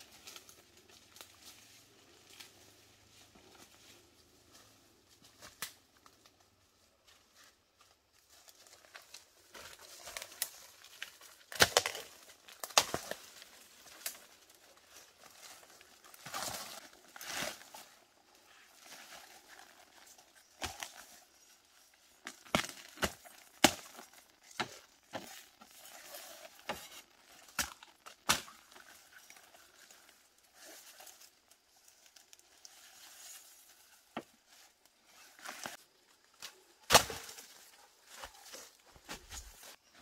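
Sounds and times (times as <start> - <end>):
bamboo cracking: 0.0 - 2.6, 5.3 - 6.4, 8.3 - 39.8
rustling of dry leaves underfoot: 0.0 - 40.0
machete chopping bamboo: 11.5 - 13.2, 22.5 - 24.0, 27.5 - 28.7, 36.8 - 37.4.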